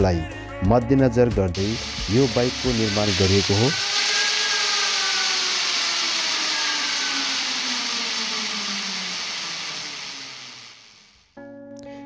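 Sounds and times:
steady rushing noise: 0:01.6 - 0:11.1
motorcycle wheel whirring down: 0:01.6 - 0:11.2.

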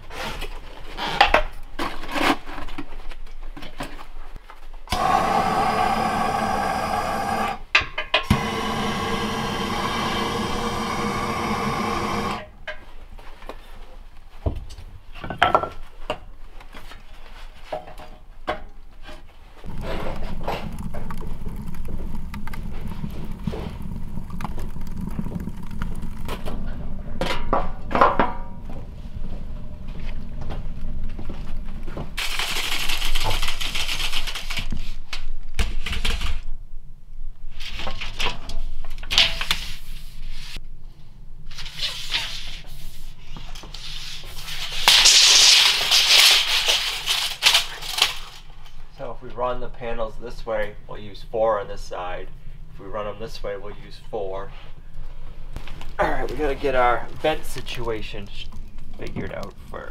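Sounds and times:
steady low rumble: 0:19.7 - 0:32.2
broom sweeping plywood floor: 0:39.4 - 0:40.6, 0:41.6 - 0:46.4.

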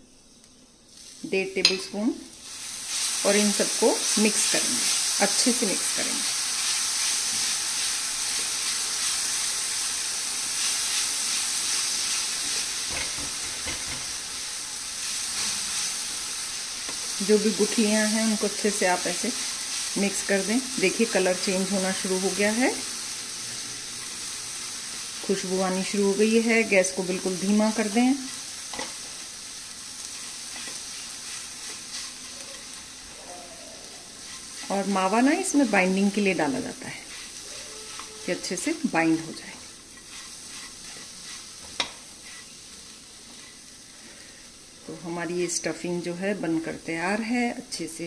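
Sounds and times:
food sizzling in a pan: 0:00.0 - 0:48.0
spatula scraping pan: 0:30.1 - 0:32.8, 0:33.8 - 0:38.8, 0:39.4 - 0:42.6.

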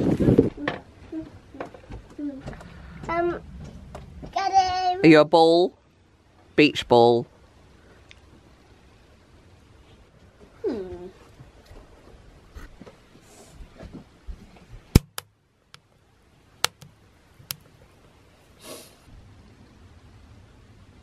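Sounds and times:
faint knocks and rustles: 0:00.4 - 0:04.8, 0:09.8 - 0:14.9
wood fire popping: 0:14.9 - 0:15.9, 0:16.6 - 0:17.8
short breathy hiss: 0:18.5 - 0:19.1.

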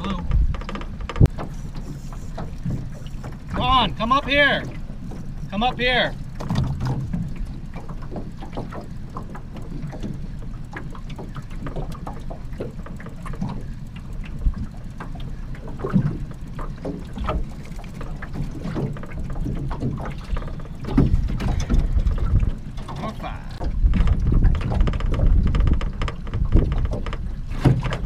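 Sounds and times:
gear knocking in boat: 0:00.0 - 0:28.0
water lapping against hull: 0:00.0 - 0:28.0.

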